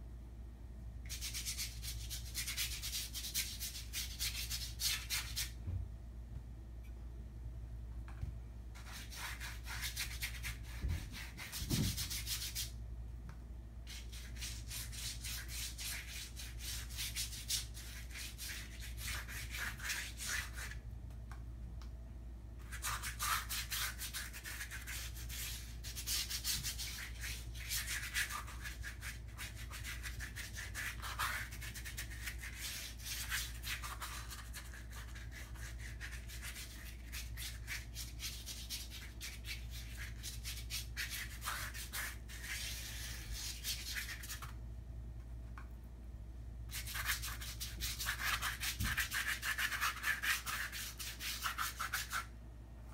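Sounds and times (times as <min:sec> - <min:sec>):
colour stick scratching on paper: 0:22.6 - 0:44.5, 0:46.7 - 0:52.3.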